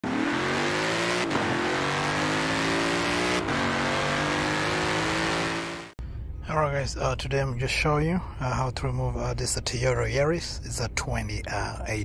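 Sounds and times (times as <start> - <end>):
car engine accelerating hard: 0.0 - 6.0.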